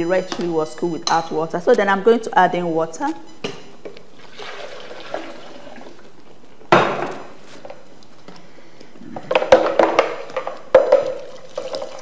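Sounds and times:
liquid pouring into pan: 11.0 - 12.0.

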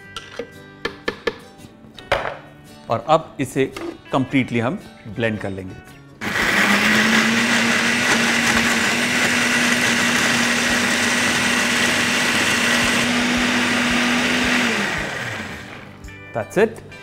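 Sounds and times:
electric blender running: 6.2 - 16.0.

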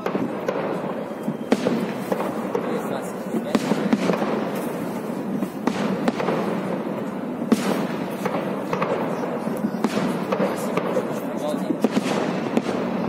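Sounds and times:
firework crackle: 0.0 - 13.0
sharp firework bang: 7.5 - 13.0.

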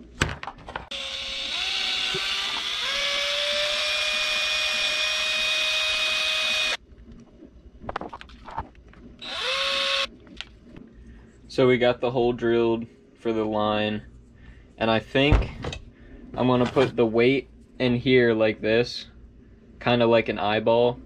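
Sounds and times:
power drill boring into wood: 0.9 - 6.8, 9.2 - 10.1.

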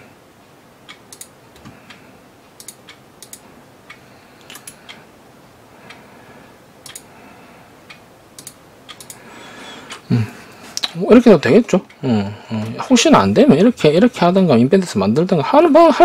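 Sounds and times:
computer mouse clicking: 0.9 - 2.0, 2.6 - 3.4, 4.4 - 5.0, 6.8 - 7.1, 7.9 - 9.2.

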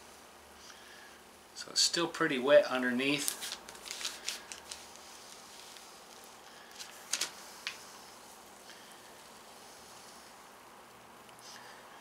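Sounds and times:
faint room hiss: 0.0 - 12.0
paper rustling: 3.1 - 7.9.

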